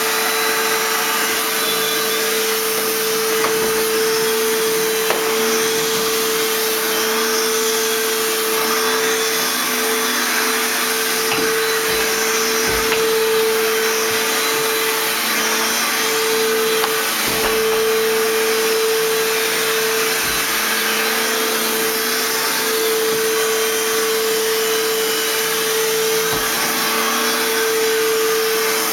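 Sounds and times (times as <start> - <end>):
vacuum cleaner running: 0.0 - 28.9
dull knocks: 11.2 - 14.3.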